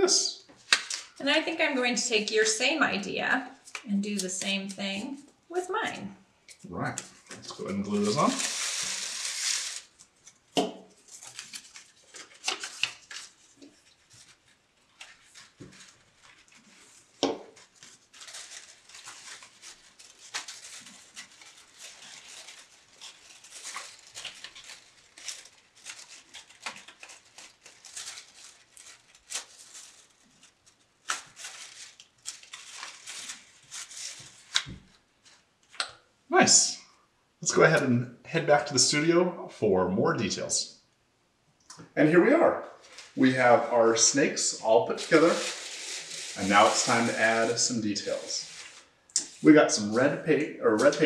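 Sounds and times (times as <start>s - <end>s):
paper rustling and crinkling: 7.1s - 35.8s, 42.8s - 43.2s, 44.9s - 50.0s.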